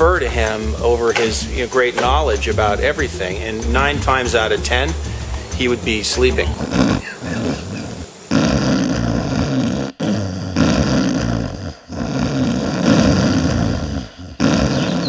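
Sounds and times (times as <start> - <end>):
loud snoring: 0.0 - 15.0.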